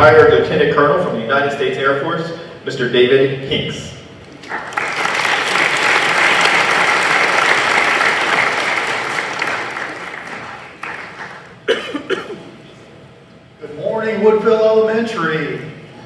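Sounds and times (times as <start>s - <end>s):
audience applauding: 4.4s - 11.6s.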